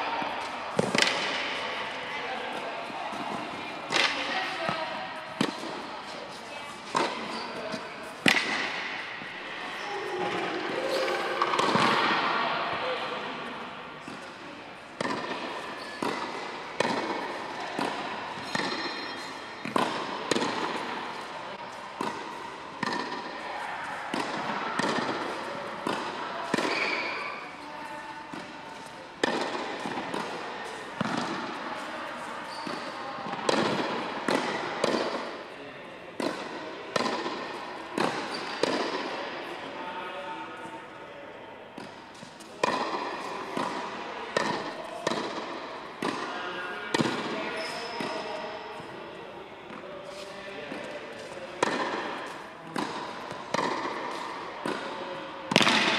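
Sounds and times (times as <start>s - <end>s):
tennis ball bouncing on court: 0.4s - 1.9s, 2.5s - 5.9s, 6.8s - 9.1s, 10.2s - 12.2s, 15.0s - 21.3s, 22.0s - 27.4s, 28.3s - 35.4s, 36.2s - 39.2s, 41.8s - 46.3s, 46.9s - 48.2s, 49.7s - 55.9s
tennis ball struck by racket: 0.7s - 1.6s, 5.3s - 5.9s, 6.8s - 9.1s, 10.3s - 12.3s, 15.0s - 21.3s, 22.0s - 23.4s, 24.0s - 27.4s, 29.2s - 31.9s, 32.6s - 35.4s, 36.2s - 39.2s, 41.8s - 46.3s, 46.9s - 48.2s, 49.7s - 55.9s.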